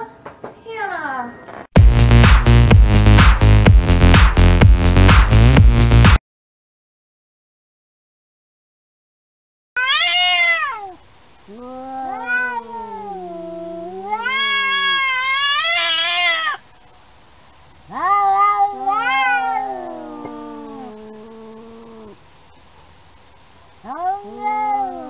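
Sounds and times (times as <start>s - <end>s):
cats yowling: 9.8s - 16.7s, 17.8s - 22.2s, 23.8s - 25.0s.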